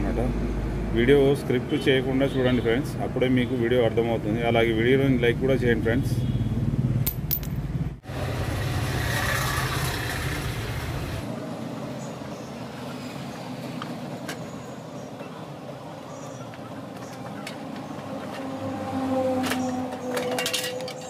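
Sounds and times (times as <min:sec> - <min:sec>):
background traffic: 0:00.0 - 0:21.0
workshop noise: 0:07.0 - 0:08.0.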